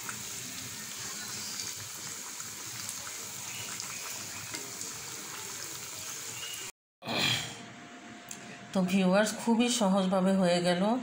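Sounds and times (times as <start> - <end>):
food deep-frying in oil: 0.0 - 6.7.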